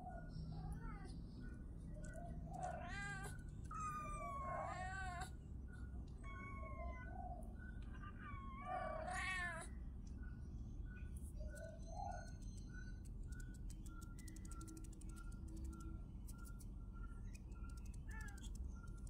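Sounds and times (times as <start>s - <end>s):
faint kitten peeps: 0.0s - 9.8s, 10.9s - 19.0s.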